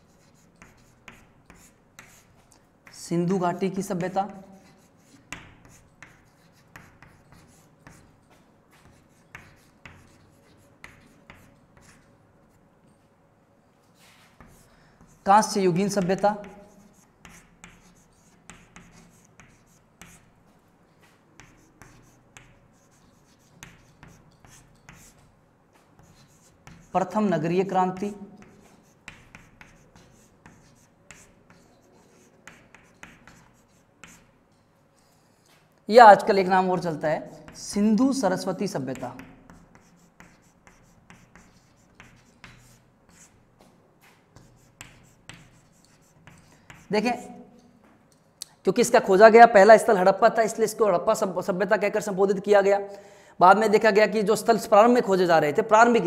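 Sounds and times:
chalk scratching on a chalkboard: 0.0 - 3.0, 3.6 - 12.6, 13.9 - 34.4, 35.0 - 35.6, 38.7 - 47.4.

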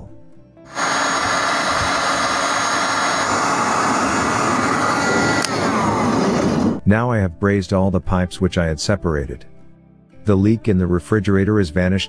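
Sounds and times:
heat gun blowing air: 0.7 - 6.8.

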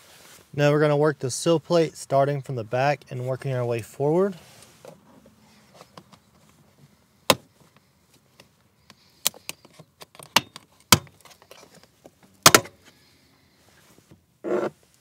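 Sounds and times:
rustling and handling noises: 0.0 - 0.6, 4.2 - 15.0.

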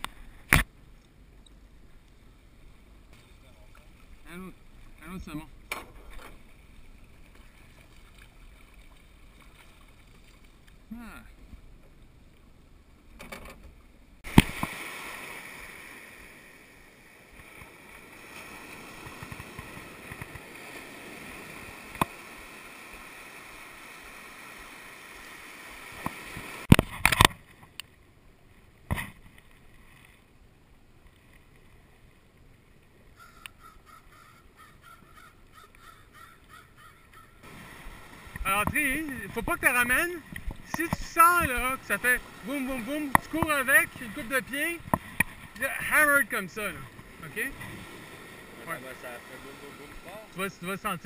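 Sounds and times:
surf washing up the beach: 14.3 - 27.3, 37.4 - 51.0
crow cawing: 33.2 - 37.4.

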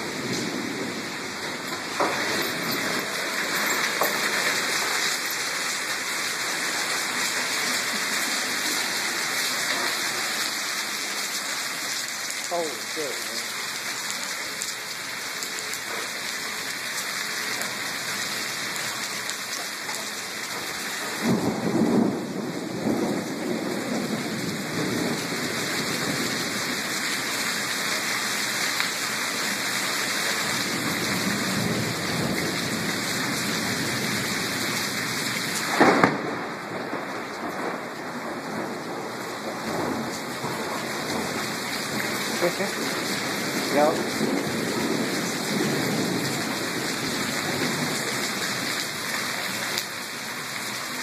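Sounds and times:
thunder rumbling: 0.0 - 11.3, 20.0 - 28.0, 30.3 - 49.7
heavy rain pouring: 0.0 - 51.0
sharp thunder clap: 21.2 - 25.5, 35.7 - 37.9.

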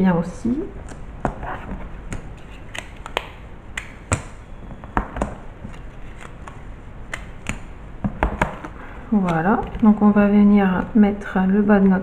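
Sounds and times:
paper and card handled: 5.2 - 7.7.

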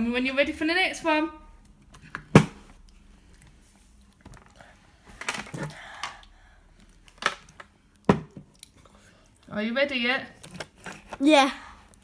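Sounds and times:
child chewing: 2.8 - 9.5, 10.4 - 12.0.

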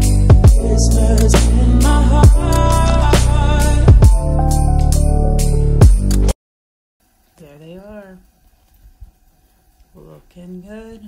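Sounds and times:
christmas pop song: 0.0 - 6.3.

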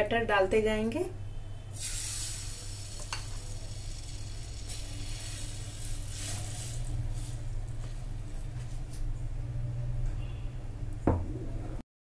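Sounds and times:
batter sizzling in a pan: 1.8 - 7.5.

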